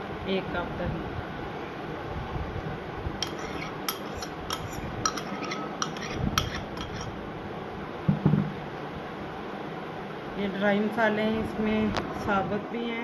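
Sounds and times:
steady background hiss: 0.0s - 13.0s
spoon scraping a bowl: 3.2s - 7.2s.

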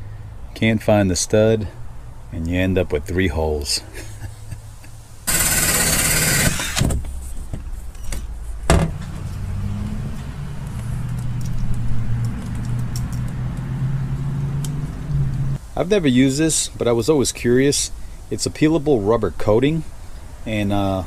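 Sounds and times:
cordless drill running: 5.3s - 6.9s.

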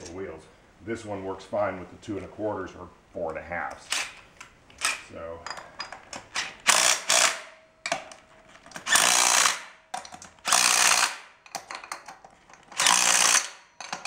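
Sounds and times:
impact wrench bursts: 3.9s - 4.2s, 6.3s - 7.5s, 8.8s - 9.8s, 10.4s - 11.4s, 12.8s - 14.0s
small clicks and knocks: 9.9s - 10.4s, 11.4s - 12.8s.

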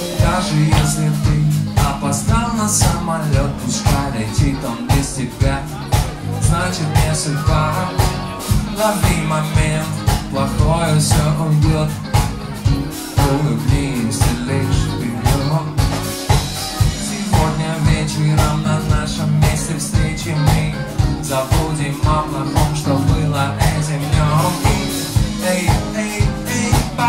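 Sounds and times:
drum kit beat: 0.0s - 27.0s
electric bass: 0.0s - 27.0s
live band playing a groove: 0.0s - 27.0s.

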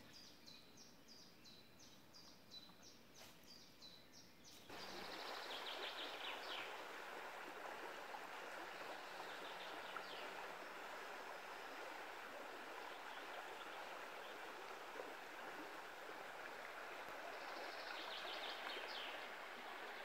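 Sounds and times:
flowing river water: 4.7s - 20.0s.

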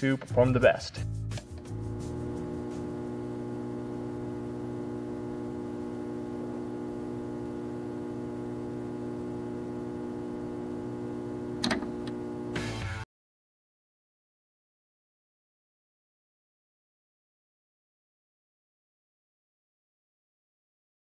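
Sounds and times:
steady tones: 1.4s - 12.9s
electrical mains hum: 1.4s - 13.0s
stylus crackle on record: 1.6s - 12.8s.

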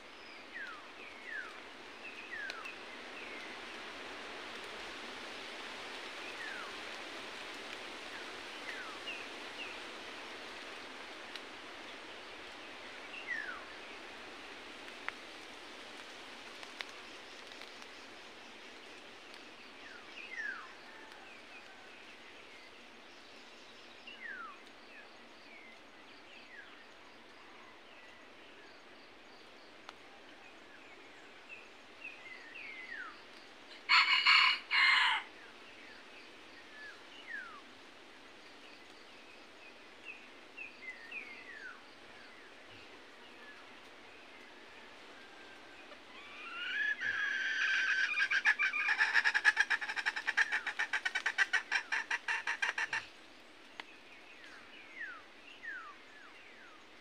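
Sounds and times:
forest ambience hiss: 0.0s - 57.0s
rooster crowing: 33.9s - 35.3s.

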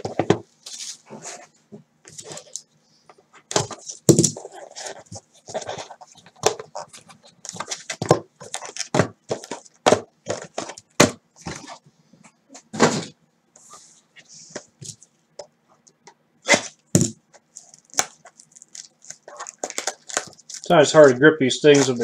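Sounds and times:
small boxes set down: 0.0s - 1.2s, 7.4s - 11.8s, 12.6s - 13.2s
scraping rustles: 17.4s - 22.0s.

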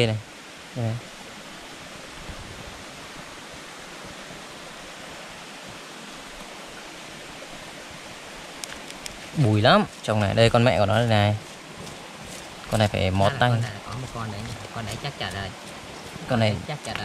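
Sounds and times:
steady rushing noise: 8.6s - 17.0s.

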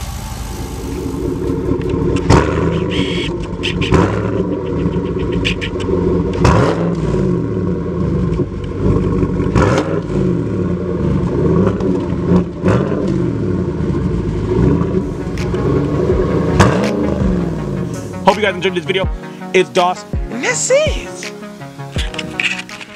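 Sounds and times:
engine idling and revving: 0.0s - 19.2s.

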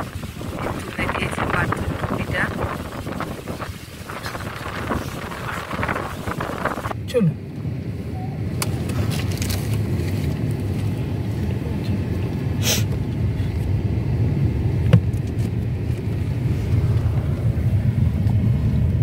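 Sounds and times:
car road and engine rumble: 0.0s - 19.0s
short hiss: 12.6s - 12.9s.

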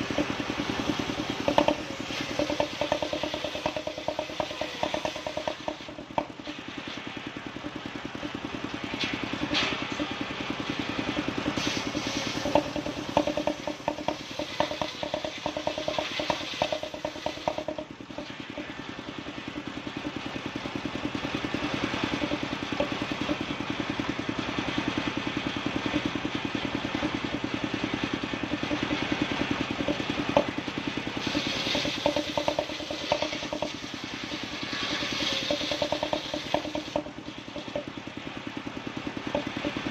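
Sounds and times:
saw blade cutting log: 0.0s - 7.1s, 10.9s - 18.8s, 28.4s - 37.9s
saw bench engine running: 0.0s - 39.9s
wood knocking against bench: 1.1s - 6.6s, 11.5s - 18.7s, 22.1s - 23.4s, 29.8s - 30.6s, 31.3s - 37.9s, 39.3s - 39.8s.

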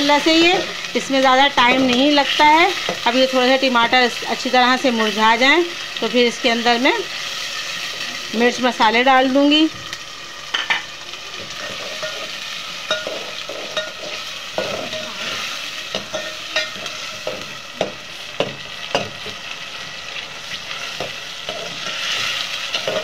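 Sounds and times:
vegetables sizzling in oil: 0.0s - 23.0s.

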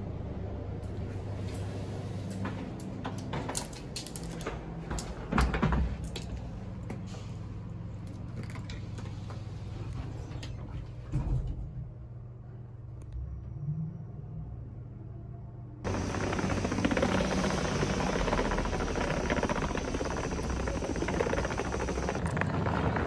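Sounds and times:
steady low hum: 6.0s - 23.0s.

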